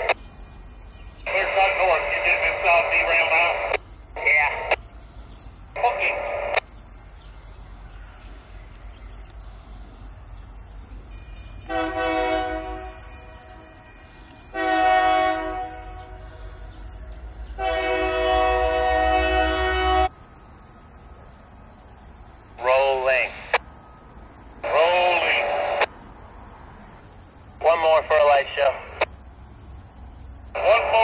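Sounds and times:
locomotive rumble: 0.0 - 31.0
locomotive air horn blasts: 11.6 - 16.7, 17.6 - 20.1.

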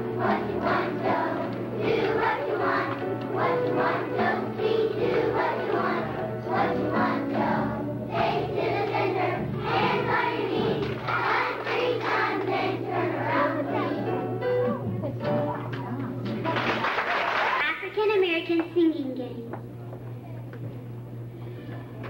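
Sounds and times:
children's choir singing: 0.0 - 14.4.

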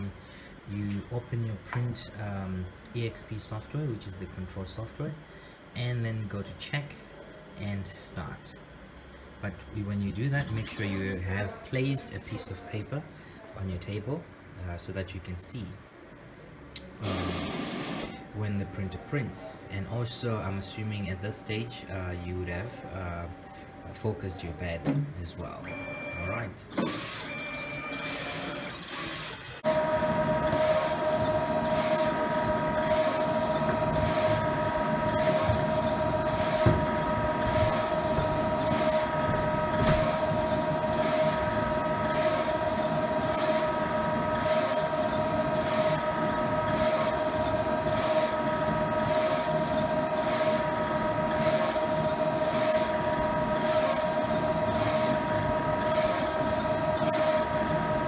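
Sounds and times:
printer machine hum: 17.0 - 58.0
high whining tones: 25.7 - 58.0
print head carriage swishing: 26.7 - 58.0.

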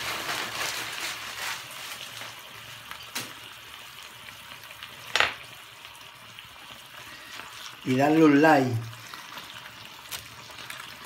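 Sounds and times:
chicken sizzling in a frying pan: 0.0 - 11.0.

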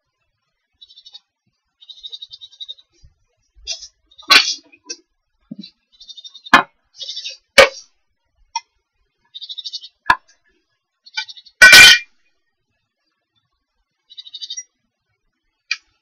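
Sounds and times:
rapid high chirping: 0.8 - 1.2, 1.8 - 3.0, 5.5 - 7.8, 9.3 - 10.1, 11.0 - 12.0, 14.1 - 14.7.

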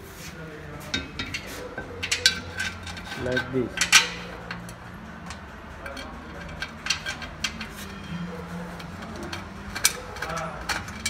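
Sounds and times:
metallic clicks of bolts: 3.8 - 7.8.

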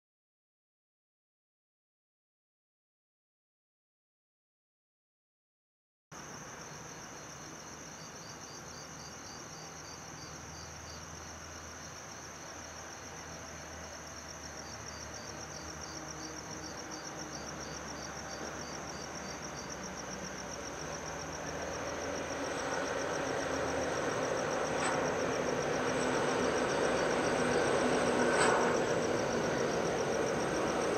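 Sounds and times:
crickets chirping: 6.1 - 30.9
diesel locomotives rumbling: 15.0 - 30.9.

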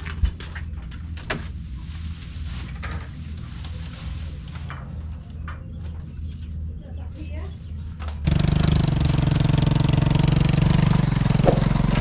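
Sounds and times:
grass rustling: 1.0 - 5.1.

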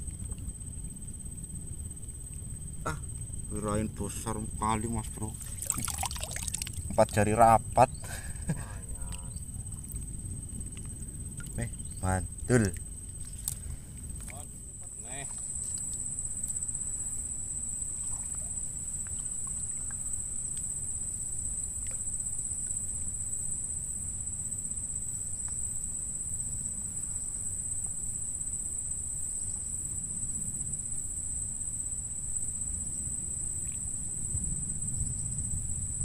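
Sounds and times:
low rumbling noise: 0.0 - 15.3
insects droning: 0.0 - 36.0.

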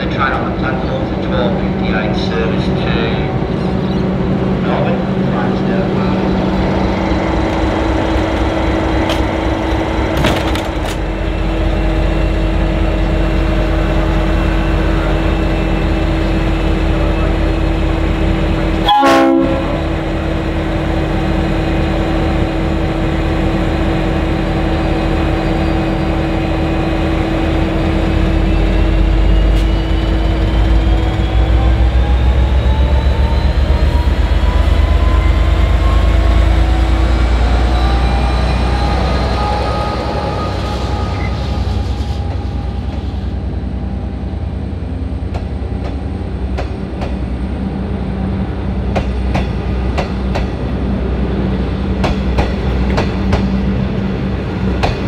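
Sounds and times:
rising engine whine: 0.0 - 48.9
diesel locomotive pulling away: 0.0 - 55.0
train wheels clicking over rail joints: 7.4 - 11.1, 48.9 - 50.7, 52.0 - 53.6, 54.7 - 55.0.

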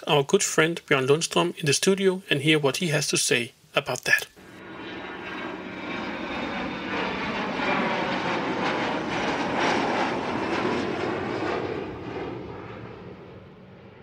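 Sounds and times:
airplane flying past: 4.4 - 14.0.

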